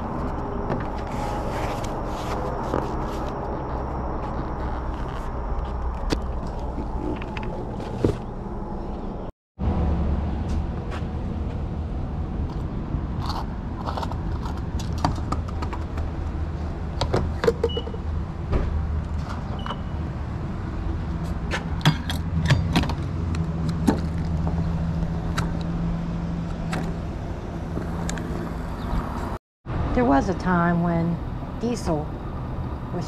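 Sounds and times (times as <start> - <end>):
steady low hum: 0.0 - 17.4.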